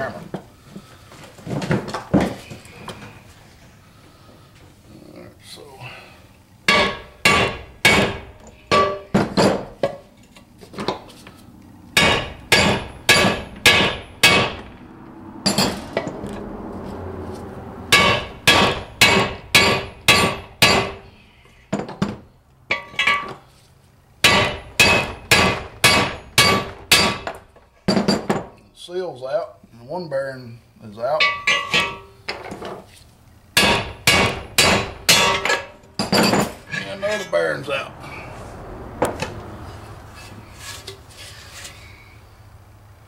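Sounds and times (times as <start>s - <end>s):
hammer striking metal: 6.7s - 9.7s, 12.0s - 14.8s, 15.5s - 16.1s, 17.9s - 21.1s, 24.2s - 28.4s, 31.2s - 32.2s, 33.6s - 36.9s.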